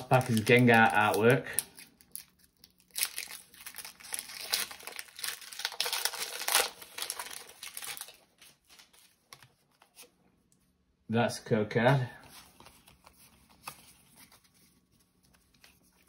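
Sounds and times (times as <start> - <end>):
foil wrapper tearing and crinkling: 0.0 - 9.1.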